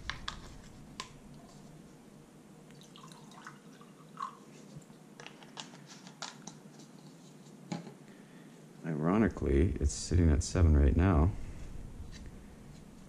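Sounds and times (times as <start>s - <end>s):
liquid trickling into glass: 2.8s - 4.4s.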